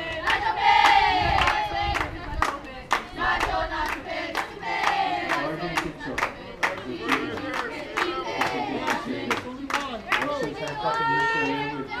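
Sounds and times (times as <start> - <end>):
girls chanting in unison: 0.0 - 9.4
rhythmic hand claps: 0.1 - 11.1.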